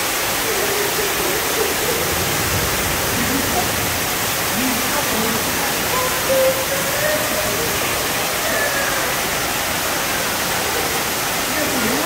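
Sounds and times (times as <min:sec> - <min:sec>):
distant voices: 0:00.0 - 0:12.0
waterfall rushing: 0:00.0 - 0:12.0.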